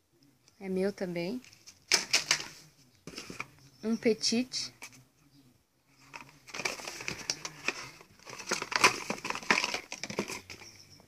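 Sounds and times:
cardboard packaging crackling: 6.1s - 10.6s.

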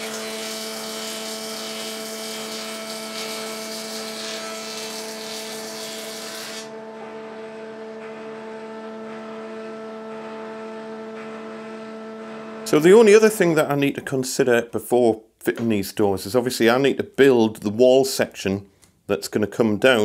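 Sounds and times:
wood cutting hiss: 0.0s - 6.7s
planer motor hum: 0.0s - 12.7s.

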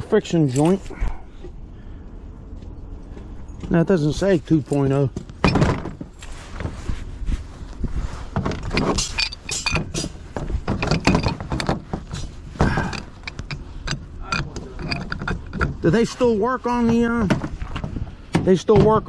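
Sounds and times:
metal wrenches clinking: 8.6s - 15.8s.

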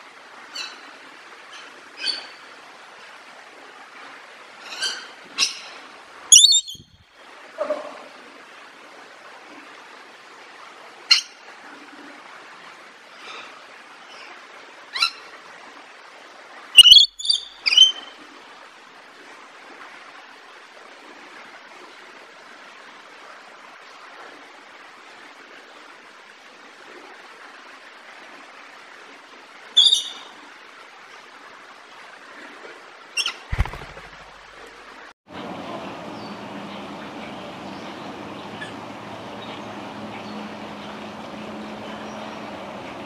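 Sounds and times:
parrot screeching and chirping: 6.3s - 6.9s, 16.8s - 18.1s.

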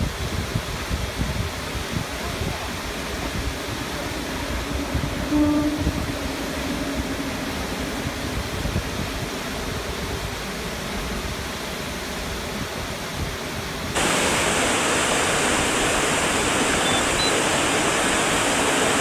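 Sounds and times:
train horn blast: 4.7s - 7.5s
waterfall rushing: 13.9s - 19.0s
faint diesel engine drone: 14.0s - 19.0s.

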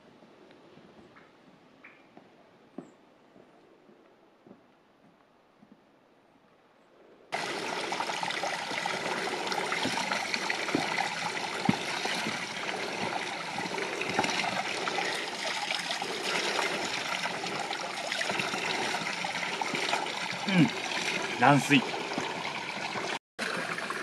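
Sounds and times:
water trickling over stones: 7.3s - 24.0s.

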